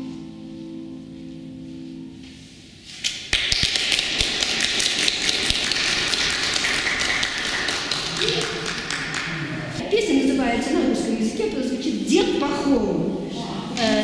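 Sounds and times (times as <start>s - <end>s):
audience applause: 3.4s - 9.8s.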